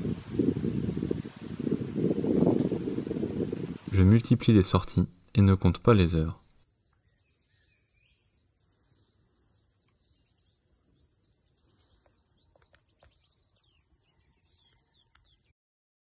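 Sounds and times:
crickets chorus: 0.0 - 15.5
faint ticks: 6.6 - 7.1, 9.5 - 13.4, 14.0 - 15.5.

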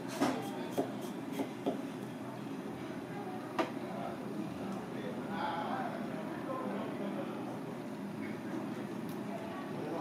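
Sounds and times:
steady background noise: 0.0 - 10.0
knife chopping on plastic board: 0.2 - 1.8.

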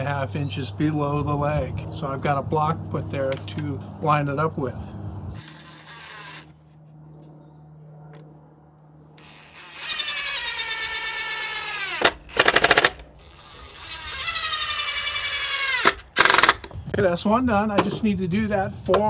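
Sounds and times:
impact driver driving screws: 5.4 - 6.5, 9.2 - 16.8
impact driver hammering: 11.4 - 13.1, 15.8 - 16.8.

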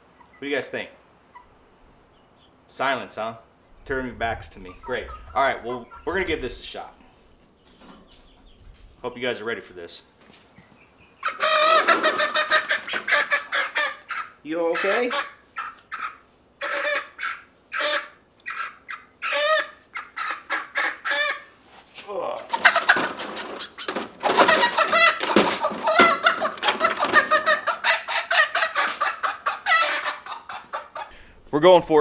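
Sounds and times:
young chickens calling: 0.0 - 31.3
chickens squawking loudly: 4.6 - 8.6, 11.1 - 21.7, 22.4 - 31.2
wings flapping: 11.6 - 13.4, 22.5 - 27.6.

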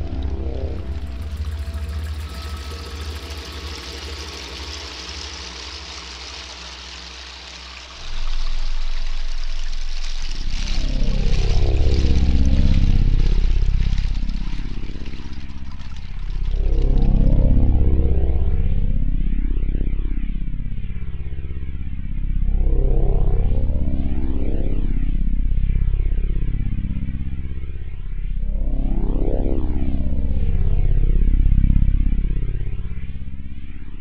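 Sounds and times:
sweeping gliding tones: 0.0 - 17.3
noisy wash: 0.0 - 18.2
dark ambient drone music: 0.0 - 34.0
low drone: 0.0 - 34.0.

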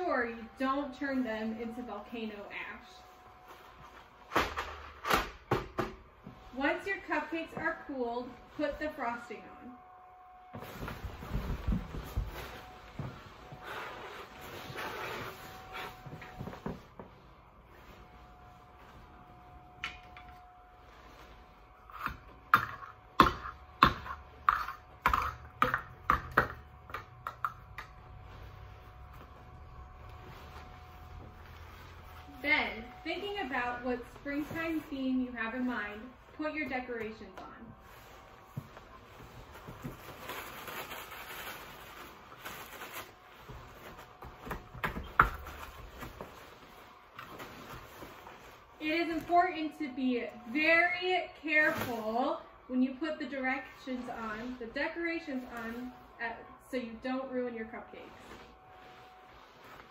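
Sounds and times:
rustling: 37.8 - 49.7.

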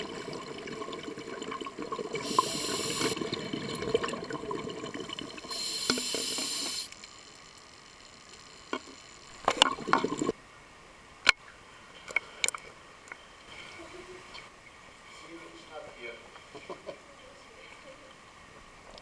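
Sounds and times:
underwater bubbles burbling: 0.0 - 6.0, 9.4 - 10.3
sharp clicks and pops: 8.3 - 10.3.

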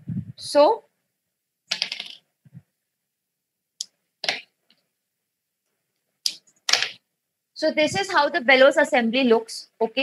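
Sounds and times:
plastic marker caps clicking: 1.7 - 2.2, 3.8 - 4.5, 6.2 - 7.0.

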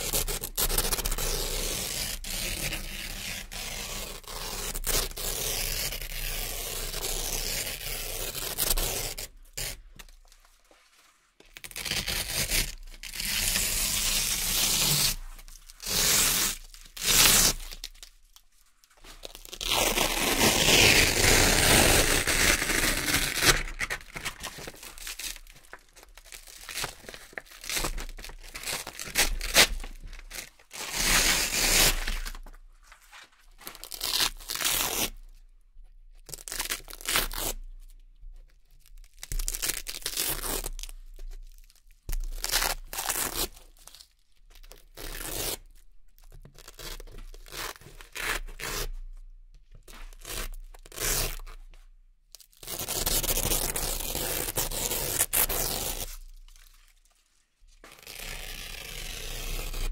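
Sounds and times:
velcro ripping: 0.0 - 9.8, 11.6 - 18.1, 19.2 - 32.5, 33.6 - 35.2, 36.3 - 37.6, 39.4 - 40.9, 42.2 - 44.0, 44.8 - 45.8, 50.0 - 51.6, 52.4 - 57.0, 57.8 - 59.9.

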